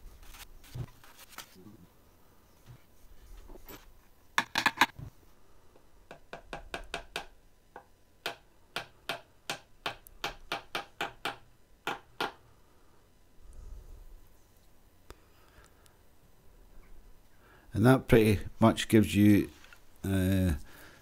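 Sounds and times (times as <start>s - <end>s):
hammer tapping on wood: 6.1s - 12.4s.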